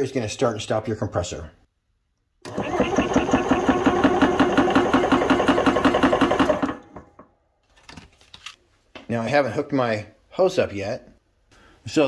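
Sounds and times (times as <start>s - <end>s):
air compressor pumping: 2.5s - 7.0s.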